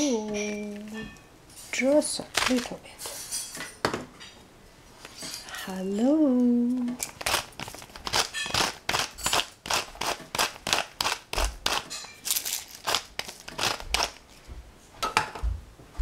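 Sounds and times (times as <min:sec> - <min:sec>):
pepper mill grinding: 0:07.0 - 0:14.3.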